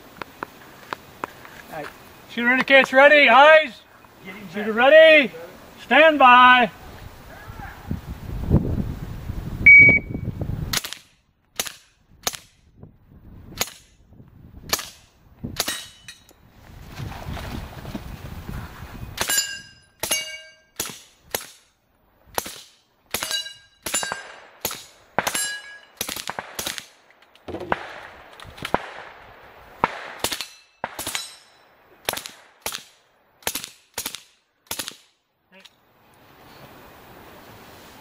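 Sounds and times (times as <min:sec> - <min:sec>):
steel targets ringing: 0:19.3 - 0:20.8, 0:23.2 - 0:24.3, 0:25.3 - 0:26.0.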